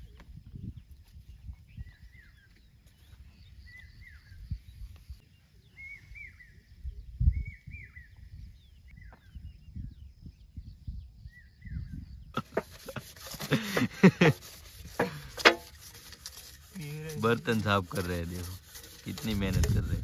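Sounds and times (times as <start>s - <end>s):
bird chirping: 0.0s - 13.4s.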